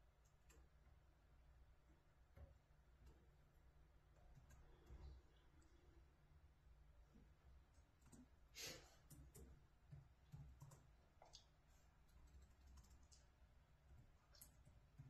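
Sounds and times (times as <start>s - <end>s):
faint clicks: 9.0s - 15.0s.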